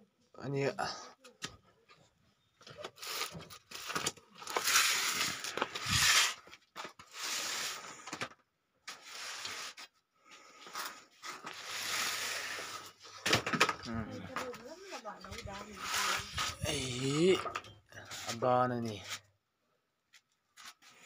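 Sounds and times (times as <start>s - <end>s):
cardboard box rustling and scraping: 2.9s - 8.0s, 14.3s - 17.0s.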